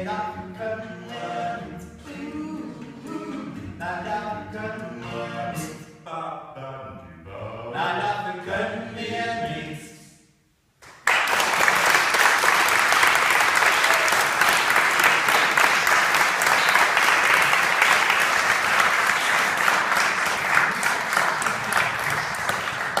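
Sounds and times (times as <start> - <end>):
audience applauding: 10.8 - 23.0.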